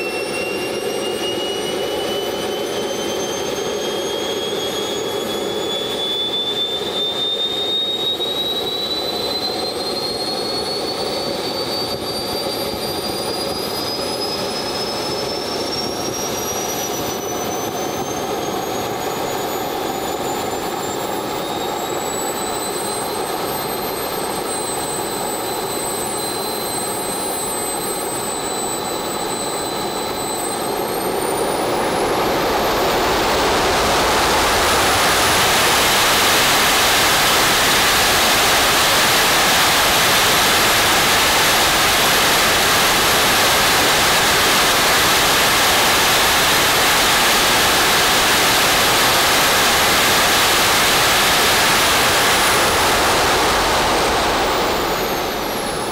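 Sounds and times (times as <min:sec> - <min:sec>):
turbine jet engine whining: 0:00.0 - 0:55.9
jet exhaust rush: 0:11.8 - 0:55.9
thin high tone: 0:20.8 - 0:55.9.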